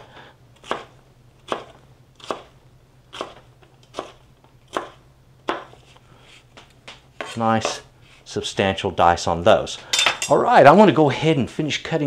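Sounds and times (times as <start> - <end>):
knife chopping on plastic board: 0.6 - 0.9, 3.1 - 5.9, 6.5 - 7.8.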